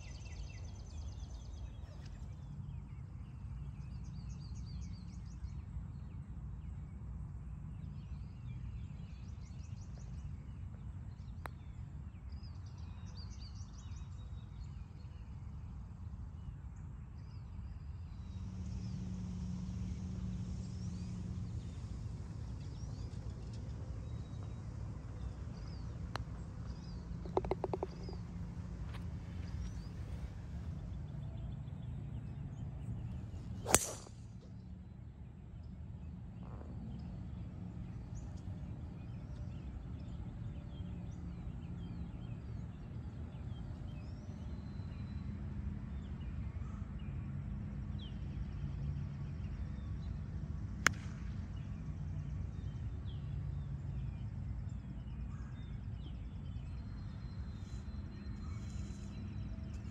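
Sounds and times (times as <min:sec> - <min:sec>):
birds chirping: 0:25.2 - 0:30.9
golf club striking ball: 0:25.6 - 0:28.3, 0:33.6 - 0:34.2.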